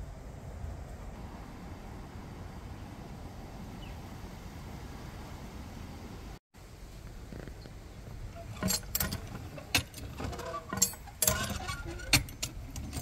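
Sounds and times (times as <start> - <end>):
metal pump clanking: 8.3 - 13.0
pump squeaks: 8.3 - 13.0.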